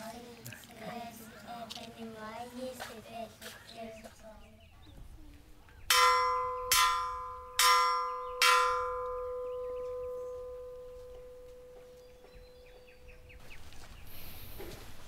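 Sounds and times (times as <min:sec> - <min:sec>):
metal bell ringing: 0:05.9 - 0:12.0.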